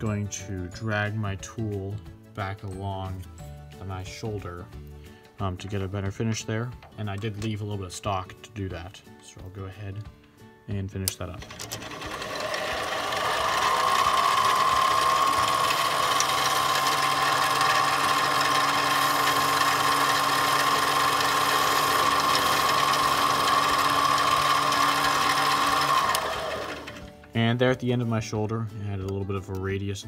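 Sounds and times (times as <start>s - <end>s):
metal lathe whining and humming: 11.4s - 27.1s.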